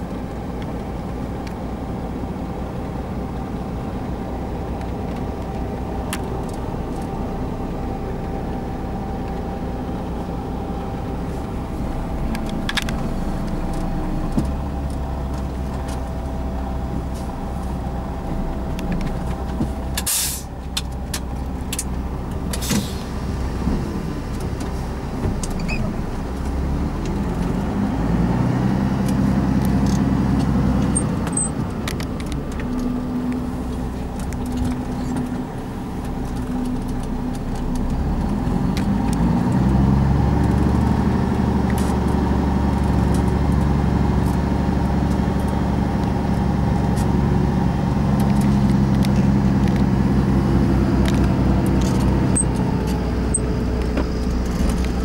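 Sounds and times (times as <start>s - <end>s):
heavy diesel engine running: 0.0s - 55.0s
air hissing: 20.0s - 20.5s.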